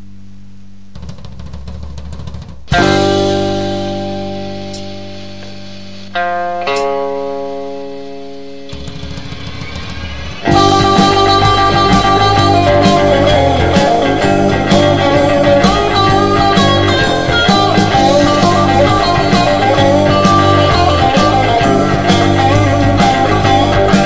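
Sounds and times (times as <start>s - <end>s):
drum kit steady beat: 1.0s - 6.1s, 6.7s - 7.0s, 8.6s - 24.0s
electric guitars melody: 2.7s - 9.4s, 10.2s - 24.0s
held bass notes: 2.7s - 9.4s, 10.4s - 24.0s.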